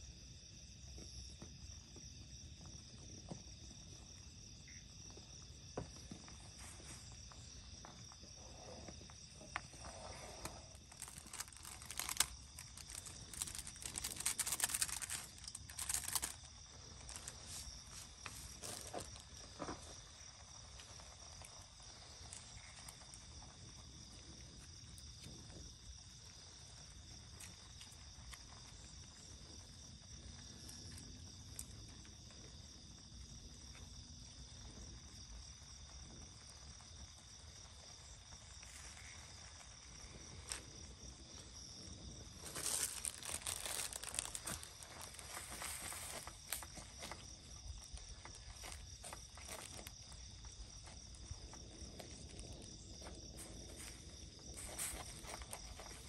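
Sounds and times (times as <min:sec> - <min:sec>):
crickets chirring: 0:00.0 - 0:56.0
plastic sachets tearing: 0:10.4 - 0:19.2, 0:42.3 - 0:47.2, 0:48.0 - 0:49.9.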